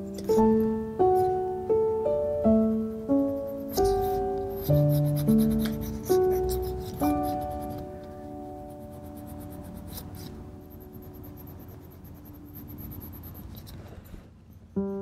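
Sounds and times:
sustained music chord: 0:00.0 - 0:11.5
pencil scratching on paper: 0:03.1 - 0:15.0.

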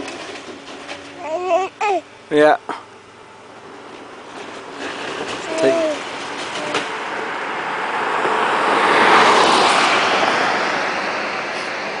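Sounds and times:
vehicle passing by: 0:03.5 - 0:12.0.

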